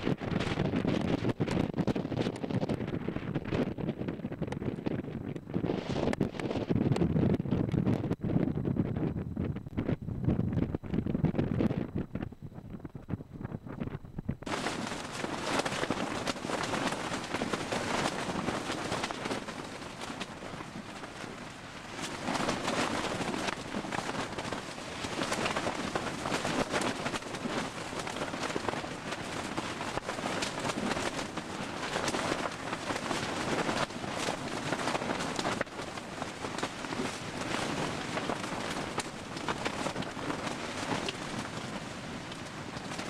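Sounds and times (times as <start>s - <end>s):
tent fabric rattling: 0.0s - 4.8s, 5.5s - 6.8s, 14.4s - 43.0s
gusting wind buffeting a tent: 0.0s - 43.0s.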